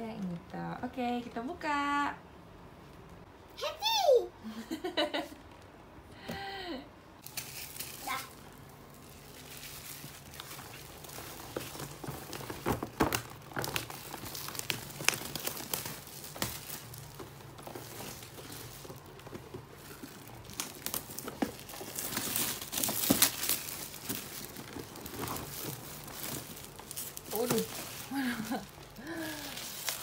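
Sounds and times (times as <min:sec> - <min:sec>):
plastic window crinkling: 0:07.3 - 0:30.0.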